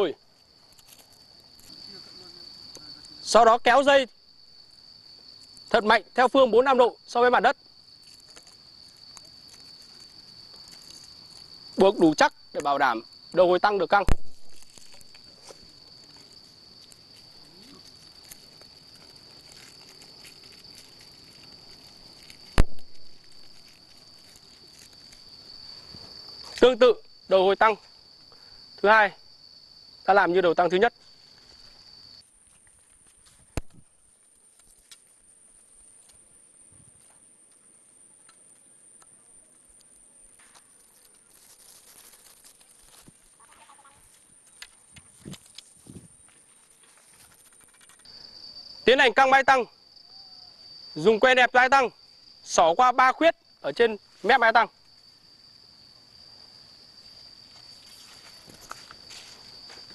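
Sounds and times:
insects buzzing: 0.0 - 59.9
rustling in dry leaves: 7.8 - 11.8, 14.2 - 26.5, 40.4 - 48.0.

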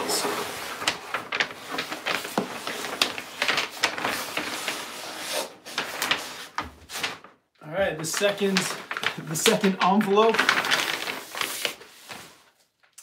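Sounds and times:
paper and cardboard scraping: 0.0 - 7.3, 8.0 - 12.6.

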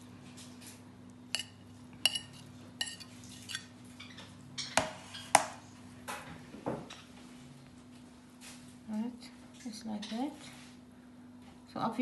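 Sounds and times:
metal spoon clinking on plate: 1.4 - 3.7.

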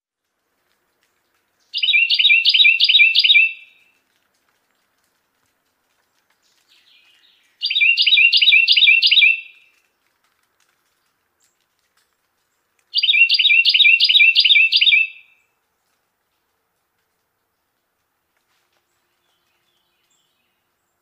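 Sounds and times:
wren singing: 1.7 - 3.7, 6.7 - 9.6, 12.9 - 15.4
faint soft bird notes: 5.6 - 10.0, 10.8 - 21.0.

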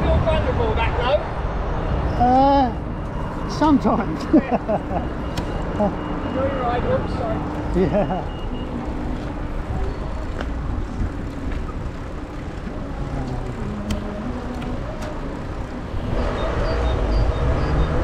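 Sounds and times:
road traffic going by: 0.0 - 18.0
wind rumble: 8.5 - 18.0.

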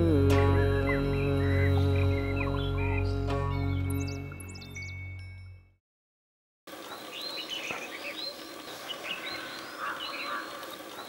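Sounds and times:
birds chirping: 0.0 - 5.4, 6.7 - 11.0
music: 0.0 - 5.8.

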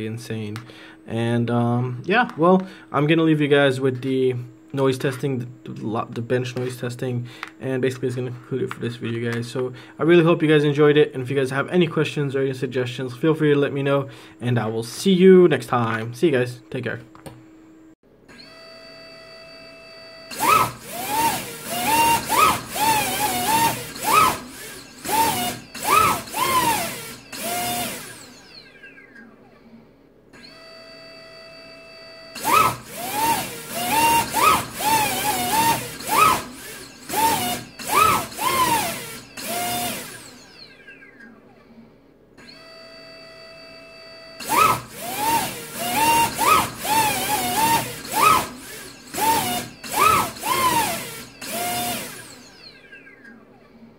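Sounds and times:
electric motor whine: 18.3 - 28.8, 30.4 - 40.7, 42.4 - 52.8.

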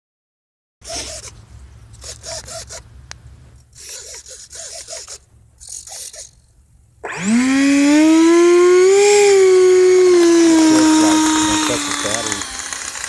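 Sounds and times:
electric ducted fans whining: 6.4 - 13.0.

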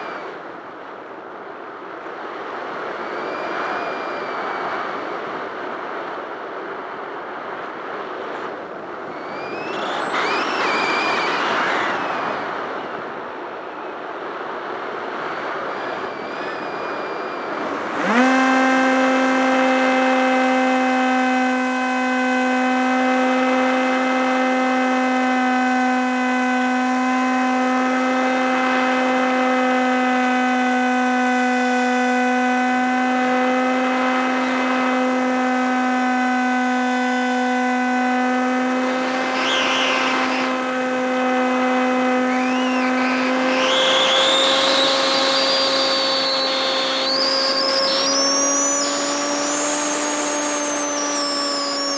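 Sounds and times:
electric motor and propeller whining: 0.0 - 0.5, 2.9 - 5.2, 9.0 - 13.0, 15.6 - 51.9
high rising whistles: 2.9 - 4.9, 9.0 - 12.8, 15.7 - 18.8, 39.2 - 40.6, 42.2 - 51.9.

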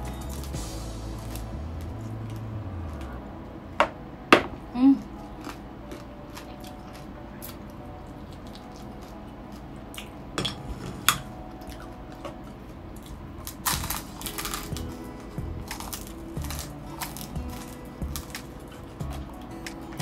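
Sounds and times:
chewing crispy food: 0.0 - 3.2, 4.9 - 10.4, 11.5 - 20.0
loud crunching bite: 13.0 - 15.0, 15.6 - 20.0.

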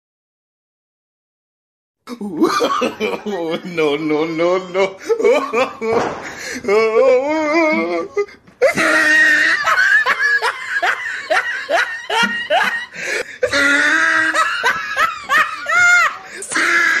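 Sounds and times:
person laughing: 2.1 - 17.0.

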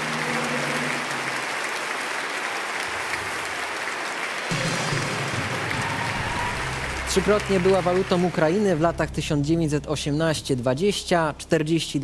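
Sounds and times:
applause: 0.0 - 9.1.

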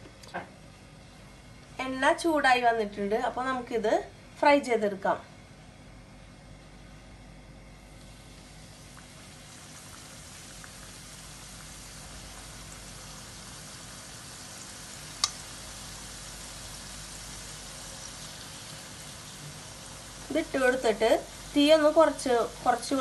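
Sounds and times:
food deep-frying in oil: 7.9 - 23.0.

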